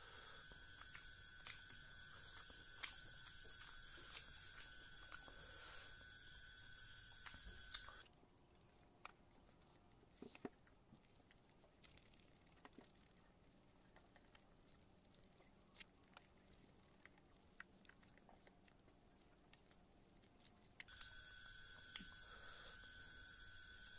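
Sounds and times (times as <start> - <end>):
person chewing: 0.0 - 6.0
steady background hum: 0.0 - 8.1, 20.9 - 23.9.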